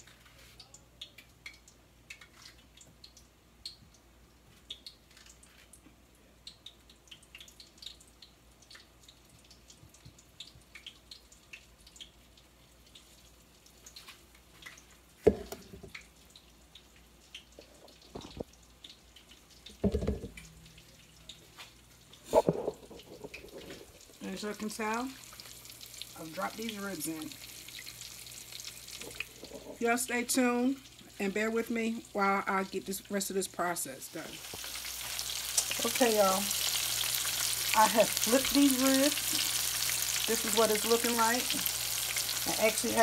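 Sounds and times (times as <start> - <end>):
grease crackling and popping: 0.0 - 43.0
knocks and handling bumps: 19.7 - 20.4.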